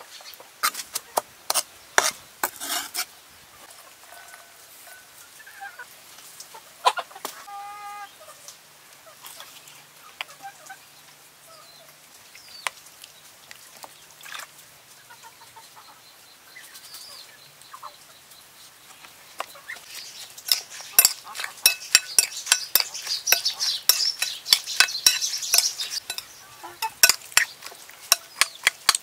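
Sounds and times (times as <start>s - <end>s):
chickens clucking: 5.2s - 11.9s, 15.0s - 18.3s, 18.9s - 29.0s
cleaver tapping ceramic bowl: 20.5s - 27.5s, 28.1s - 29.0s.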